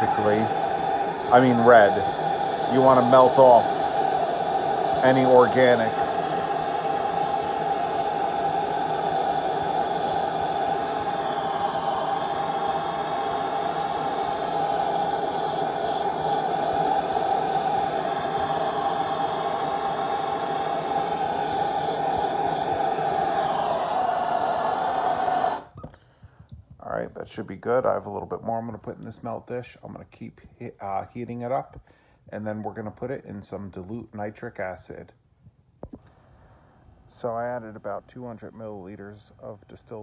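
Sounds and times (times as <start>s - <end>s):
gas torch flame hissing: 0.0s - 25.8s.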